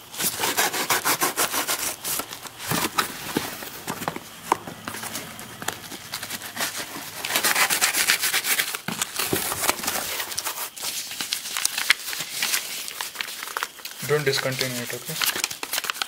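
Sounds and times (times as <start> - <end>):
paper and bubble wrap crinkling: 0.0 - 16.0
cardboard box being cut open: 0.1 - 10.7.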